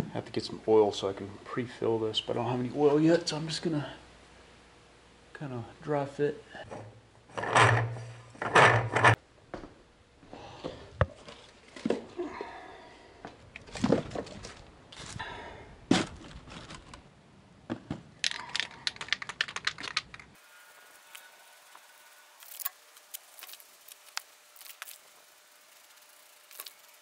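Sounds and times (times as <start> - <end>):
packaging crinkling: 22.4 - 25.2, 26.4 - 27.0.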